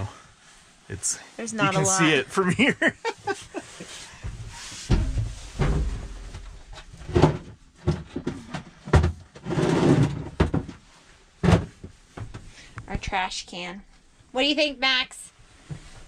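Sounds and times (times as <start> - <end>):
rustling: 3.0 - 7.2
knocks and bumps: 4.2 - 12.5.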